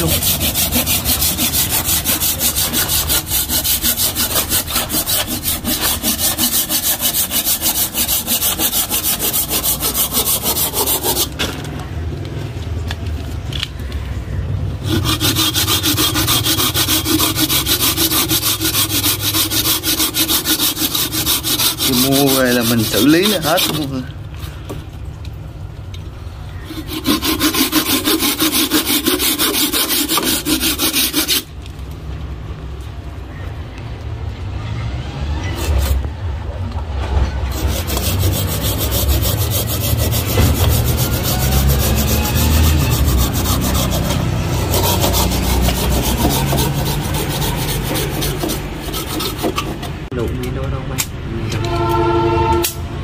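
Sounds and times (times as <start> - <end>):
hand saw cutting wood: 0.0 - 11.4, 14.8 - 24.1, 26.6 - 31.5, 35.5 - 36.0, 37.5 - 50.1.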